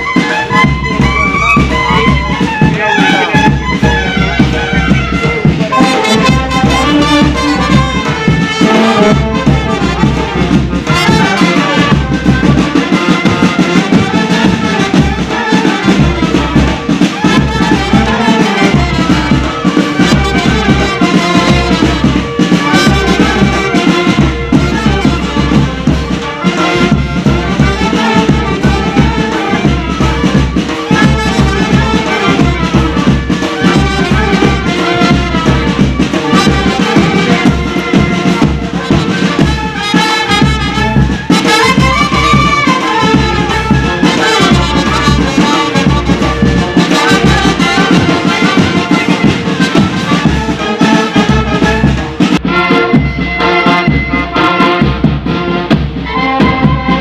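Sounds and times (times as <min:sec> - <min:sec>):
brass band playing a folk tune: 0:00.0 - 0:57.0
steady drum beat: 0:00.0 - 0:57.0.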